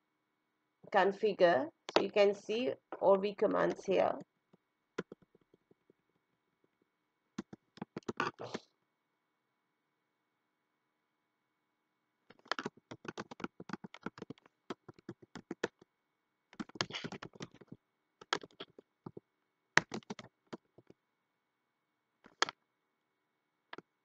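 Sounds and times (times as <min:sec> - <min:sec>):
typing on computer keyboard: 0:07.4 - 0:08.6, 0:12.3 - 0:15.8, 0:16.6 - 0:19.2, 0:19.8 - 0:20.9.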